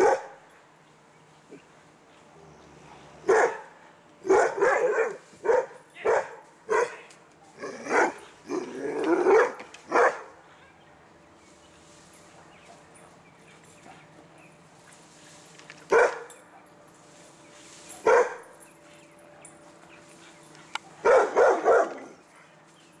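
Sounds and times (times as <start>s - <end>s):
dog barking: 0.0s - 0.4s, 3.2s - 10.4s, 15.9s - 16.7s, 18.0s - 18.5s, 20.8s - 22.2s.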